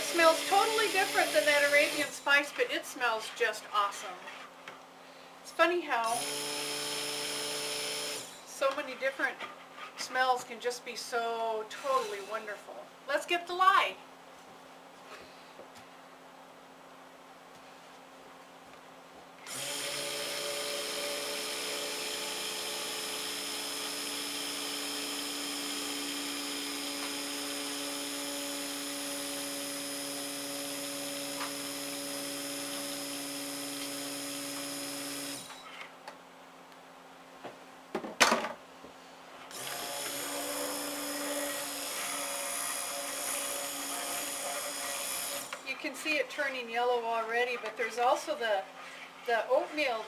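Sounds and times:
stick blender running: 0:00.0 - 0:02.3, 0:06.1 - 0:08.5, 0:19.5 - 0:35.6, 0:39.5 - 0:45.9.

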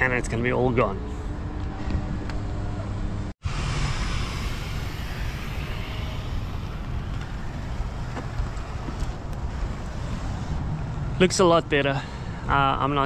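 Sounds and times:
wind buffeting microphone: 0:03.5 - 0:11.4.

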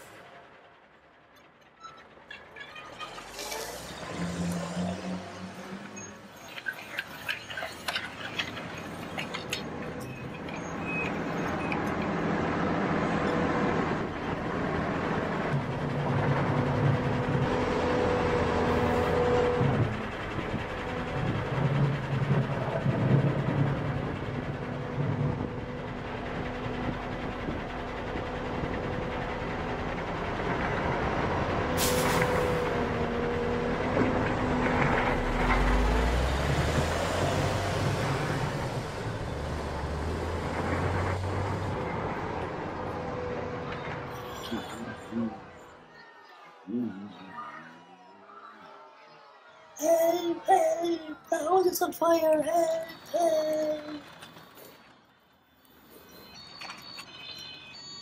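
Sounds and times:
heavy diesel machinery running: 0:00.0 - 0:45.9
brief hiss: 0:31.8 - 0:32.5.

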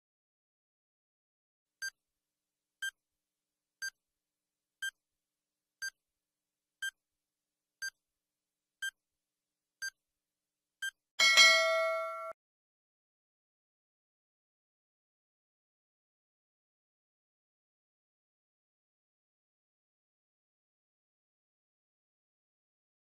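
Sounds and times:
ringing chime: 0:11.2 - 0:12.4.

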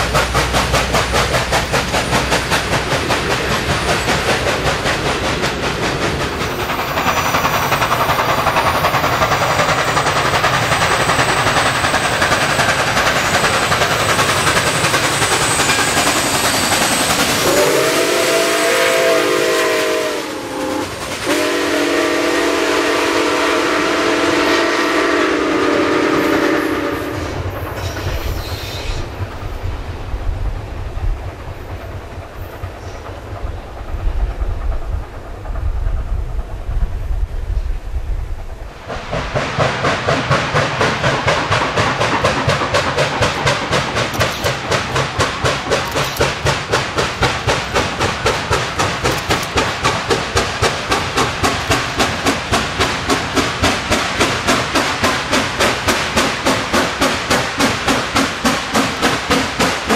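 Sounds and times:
train cars clattering: 0:00.0 - 0:37.8, 0:38.4 - 0:59.9
steam locomotive chime whistle: 0:14.0 - 0:29.0.

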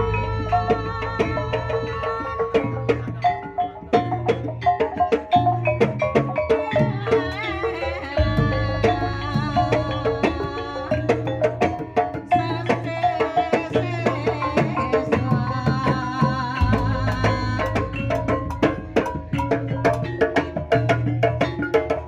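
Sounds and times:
hand drum fast beat: 0:00.0 - 0:22.0
metallophone: 0:00.0 - 0:22.0
deep low drum stroke: 0:08.2 - 0:11.1.

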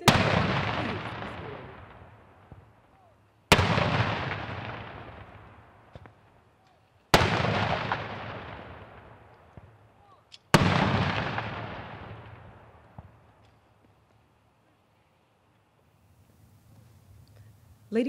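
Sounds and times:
cannon booms echoing: 0:00.0 - 0:02.8, 0:03.5 - 0:06.2, 0:07.1 - 0:09.8, 0:10.5 - 0:13.2.

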